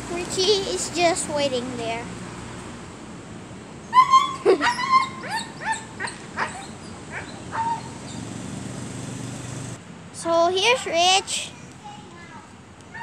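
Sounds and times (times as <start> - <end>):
dog whining: 3.9 - 8.2
dog yipping: 3.9 - 8.2.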